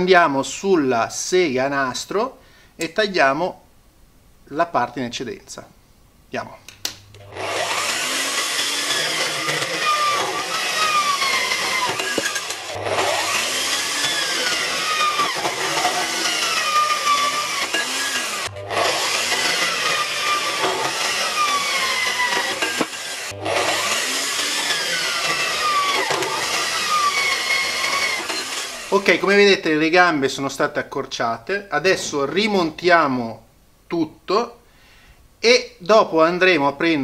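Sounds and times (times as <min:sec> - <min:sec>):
band saw cutting metal: 0:07.2 - 0:29.2.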